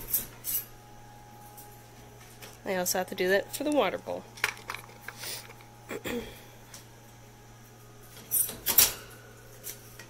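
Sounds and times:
feeding cup clatter: 4.4 - 5.6.

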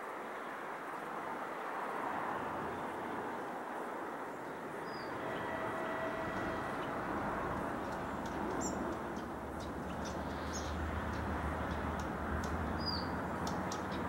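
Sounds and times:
locomotive engine droning: 4.8 - 14.0
bird chirps: 7.8 - 14.0.

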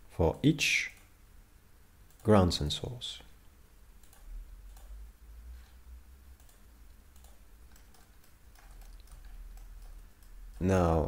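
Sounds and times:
computer mouse clicks: 4.0 - 5.0, 6.4 - 10.7
scroll wheel ticks: 4.0 - 5.0, 6.4 - 11.0.

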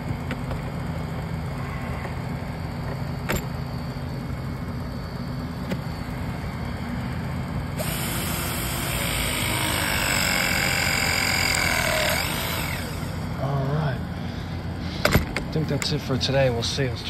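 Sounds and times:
steady low hum: 0.0 - 17.0
pipe press tool whining: 7.8 - 13.4.

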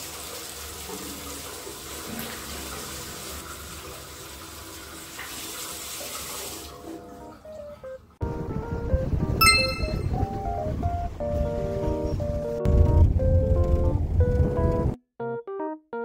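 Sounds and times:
tap water running into sink: 0.0 - 7.2.

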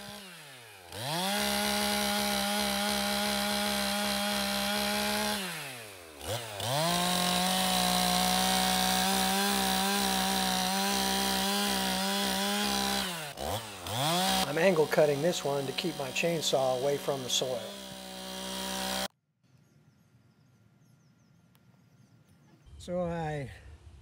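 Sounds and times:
chainsaw revving and cutting roots: 0.0 - 19.1.

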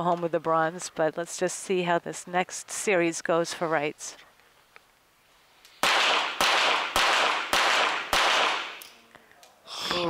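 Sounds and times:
pistol shots echoing indoors: 5.8 - 8.8.

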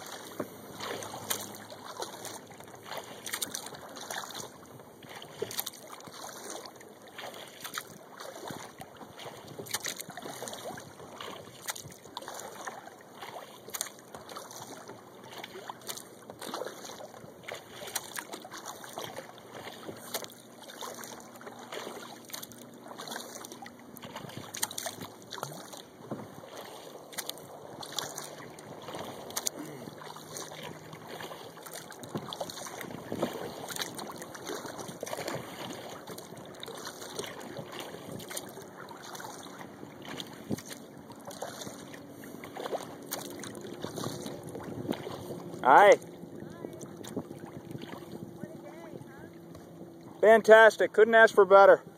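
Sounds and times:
drips and knocks against hull: 0.0 - 48.3, 49.4 - 50.2
water lapping and splashing: 0.0 - 51.9.

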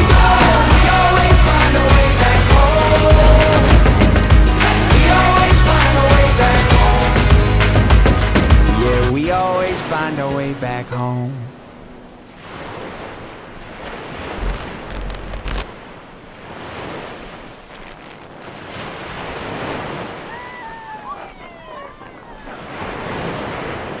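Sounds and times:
wind on microphone: 2.9 - 4.5
short falling whistles: 3.1 - 3.9
ocean surf washing onto beach: 11.8 - 24.0.

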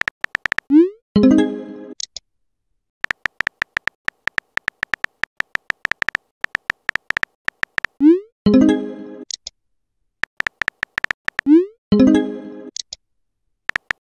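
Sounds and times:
keyboard tap clicks with beeps: 0.0 - 0.8, 3.0 - 8.1, 10.2 - 11.6, 13.7 - 14.0.

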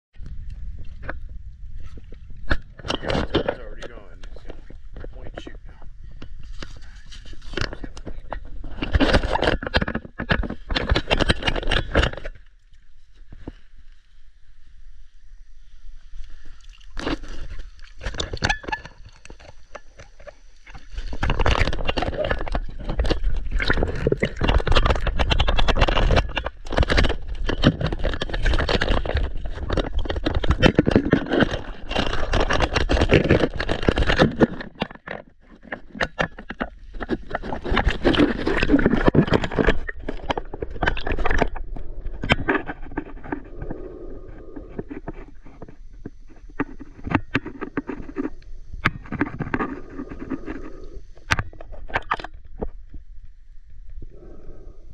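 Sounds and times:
water sloshing and splashing: 16.0 - 42.6.

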